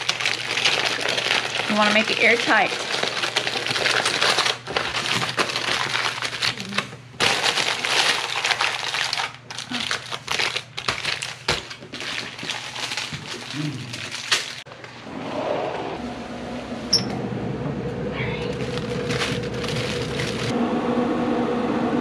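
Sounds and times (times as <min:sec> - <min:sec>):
wrapping crinkling: 0:00.0 - 0:14.8, 0:18.4 - 0:20.6.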